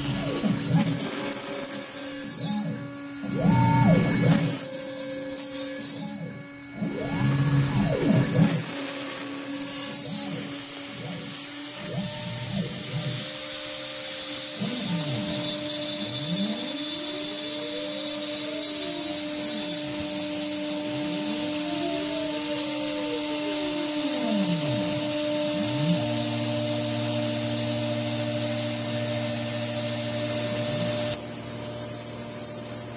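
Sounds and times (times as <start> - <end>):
stepper motors sweeping pitch: 0.0 - 13.6
router spindle whine: 0.0 - 32.9.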